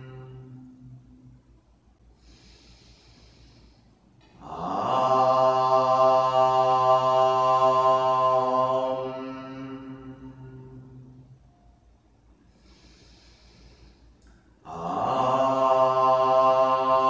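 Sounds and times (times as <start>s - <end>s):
person chanting: 0.0s - 1.4s, 4.3s - 11.5s, 14.6s - 17.0s.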